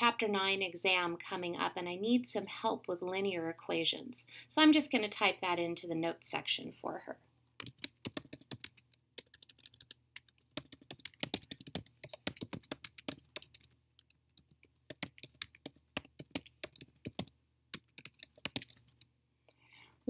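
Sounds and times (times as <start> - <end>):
keyboard typing clicks: 7.6 - 19.1.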